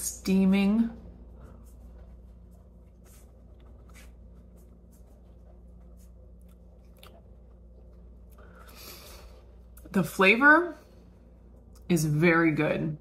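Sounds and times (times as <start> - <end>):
low steady hum: 0.0 - 13.0
chewing soft food: 5.4 - 8.6.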